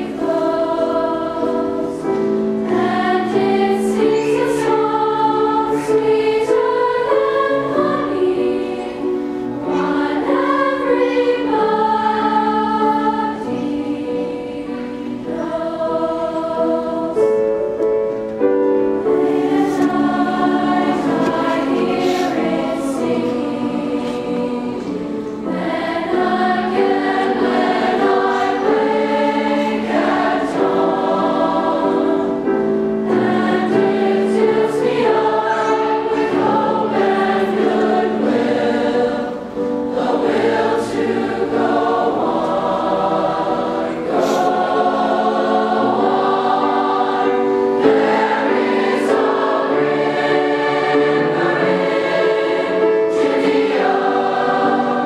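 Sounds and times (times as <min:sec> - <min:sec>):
choir singing in parts: 0:00.0 - 0:55.0
grand piano accompaniment: 0:00.0 - 0:55.0.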